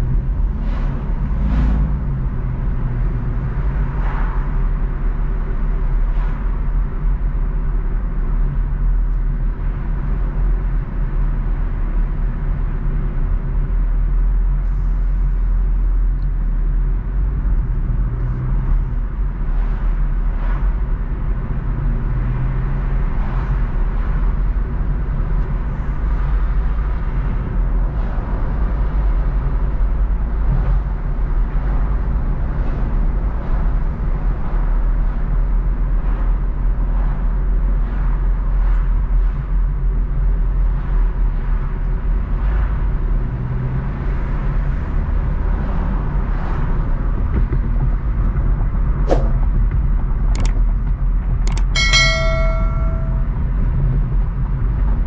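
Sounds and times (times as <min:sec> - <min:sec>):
car engine and road rumble: 0:00.0 - 0:55.0.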